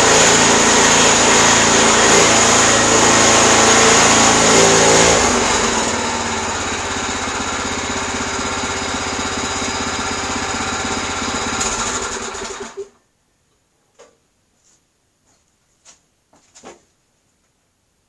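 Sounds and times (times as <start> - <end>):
small gas engine running: 0.0 - 13.0.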